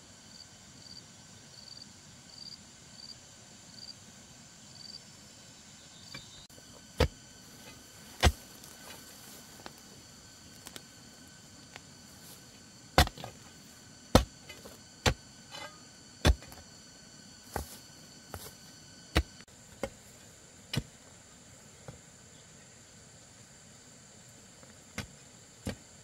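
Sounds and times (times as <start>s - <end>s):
sharp chopping knocks: 8.2s - 8.4s, 13.0s - 13.4s, 16.2s - 16.6s.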